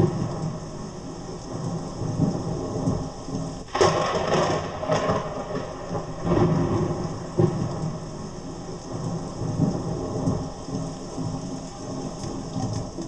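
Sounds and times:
steady rain: 0.0s - 13.0s
thunder rumbling: 0.0s - 13.0s.

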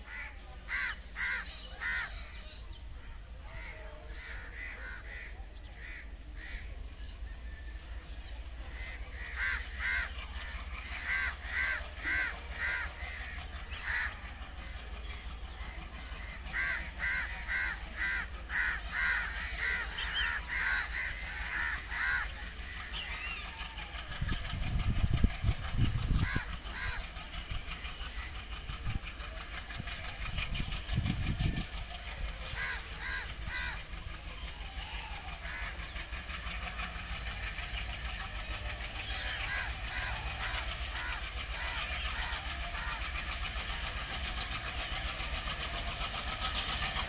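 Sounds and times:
crows cawing: 0.0s - 2.2s, 3.5s - 6.7s, 8.7s - 14.2s, 16.2s - 23.2s, 26.2s - 27.0s, 32.5s - 33.9s, 35.4s - 35.9s, 39.2s - 43.3s
steady low rumble: 0.0s - 47.0s.

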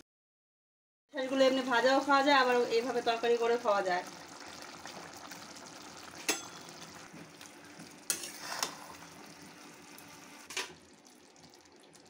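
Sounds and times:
curry sizzling in pan: 1.3s - 12.0s
spatula scraping metal pan: 8.1s - 9.0s.

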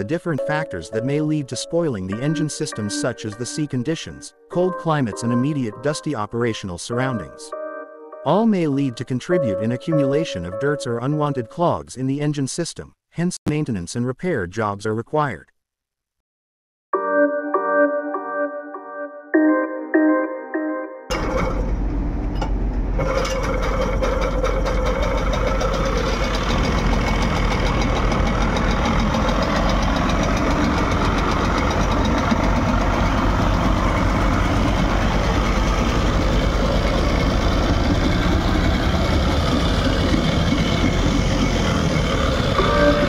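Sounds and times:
outboard engine running: 23.0s - 43.0s
propeller churning water: 23.0s - 43.0s.

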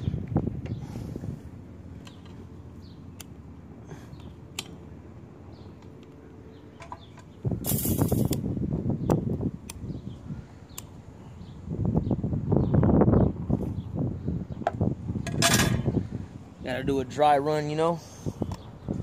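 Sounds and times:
low rumbling on microphone: 0.0s - 3.0s, 7.0s - 17.3s
low steady hum: 0.0s - 19.0s.

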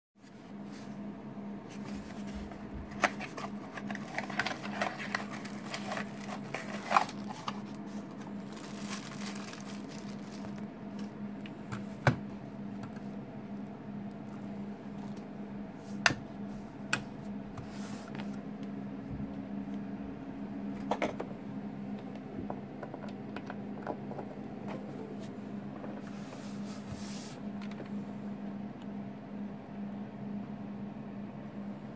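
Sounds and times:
steady low hum: 0.2s - 31.9s
packaging rustling and crinkling: 1.7s - 11.1s.

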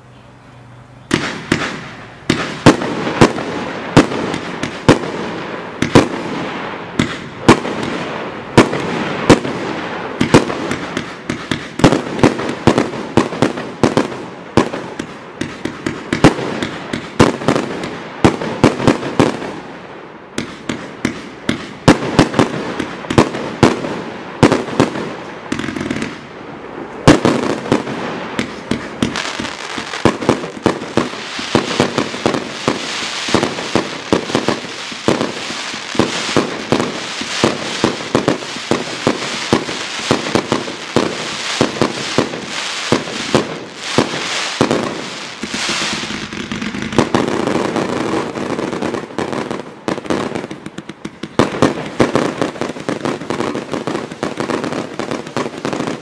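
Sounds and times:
firework shots and bangs: 1.1s - 56.0s
firework hiss: 20.4s - 56.0s.

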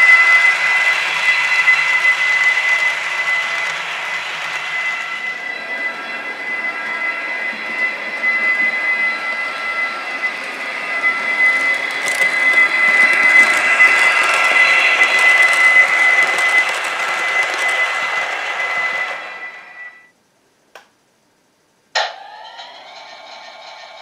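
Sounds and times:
wheels rolling on rails: 0.0s - 20.0s
model train motor whine: 0.0s - 20.1s.

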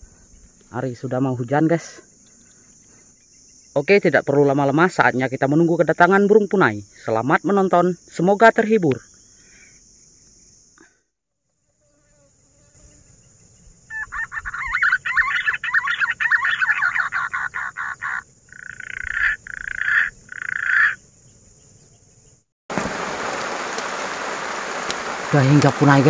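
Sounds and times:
frogs croaking: 0.0s - 10.9s, 13.0s - 22.3s, 23.0s - 26.0s
rain: 22.7s - 26.0s.

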